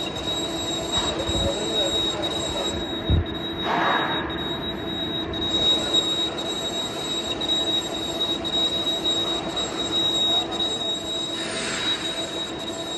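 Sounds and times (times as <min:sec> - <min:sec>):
high-pitched metal cutting squeal: 0:11.2 - 0:12.9.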